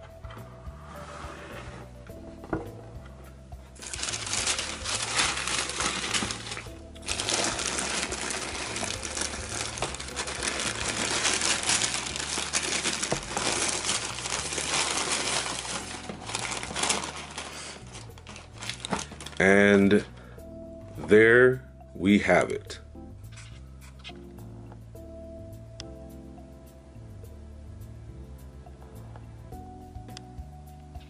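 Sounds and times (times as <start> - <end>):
background music: 0.0 - 31.0
tissue paper crinkling: 3.8 - 19.5.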